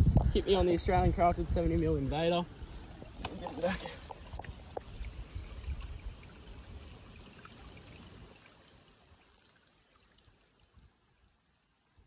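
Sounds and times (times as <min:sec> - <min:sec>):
river water sloshing and trickling: 0:02.3 - 0:11.9
water drips: 0:02.6 - 0:11.4.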